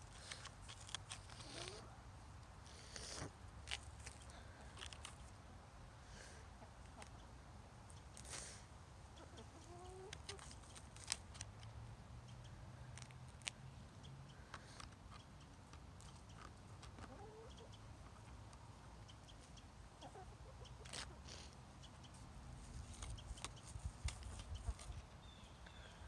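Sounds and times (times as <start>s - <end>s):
hens clucking: 9.0s - 10.8s, 14.4s - 22.2s, 24.3s - 25.1s.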